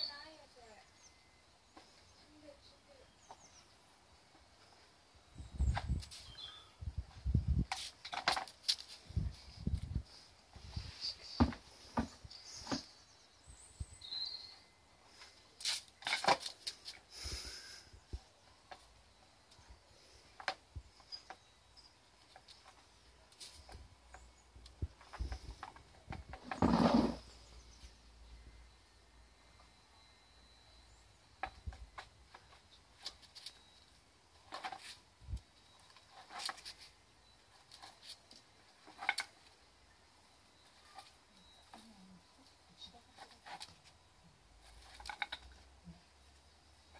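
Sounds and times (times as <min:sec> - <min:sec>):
plastic clacks and scrapes on stone: 0:07.7 - 0:09.0, 0:24.9 - 0:27.3, 0:34.5 - 0:35.0, 0:35.9 - 0:36.9, 0:37.6 - 0:39.4, 0:44.6 - 0:45.6.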